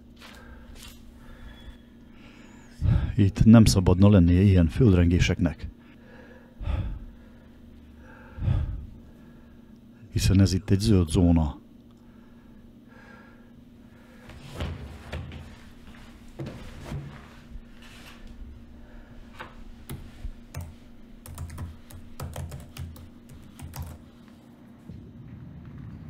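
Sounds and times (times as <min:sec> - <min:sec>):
low steady hum: 0:00.0 - 0:26.0
laptop keyboard typing: 0:19.9 - 0:24.4.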